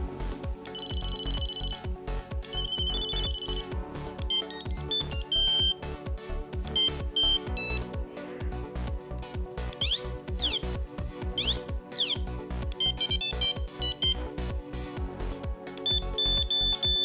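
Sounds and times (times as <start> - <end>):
background music beat: 0.0 - 17.0
phone beeping ring: 0.7 - 1.9, 2.5 - 3.7, 4.3 - 5.8, 6.7 - 7.9, 9.8 - 10.7, 11.4 - 12.2, 12.8 - 14.2, 15.8 - 17.0
single-note beeping melodies: 0.7 - 1.9, 2.5 - 5.9, 6.7 - 7.9, 9.8 - 10.7, 11.4 - 14.3, 15.8 - 17.0.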